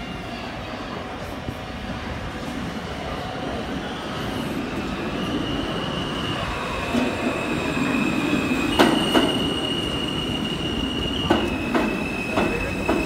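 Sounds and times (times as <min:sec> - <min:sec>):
subway train rumbling: 0:00.0 - 0:13.0
wheels squealing: 0:03.8 - 0:13.0
wheels clacking over rail joints: 0:11.2 - 0:13.0.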